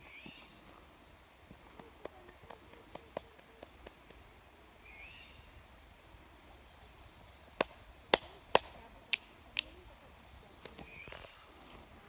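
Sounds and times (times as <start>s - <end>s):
faint bird calls: 9.6s - 12.0s.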